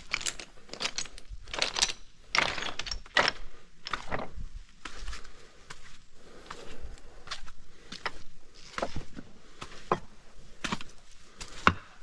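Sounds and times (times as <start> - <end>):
slate pieces clinking: 0.0 - 4.0
footsteps crunching on slate rubble: 0.0 - 12.0.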